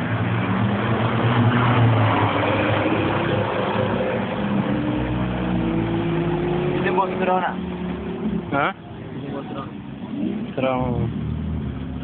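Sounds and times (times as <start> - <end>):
sports car accelerating past: 0.1 - 8.5.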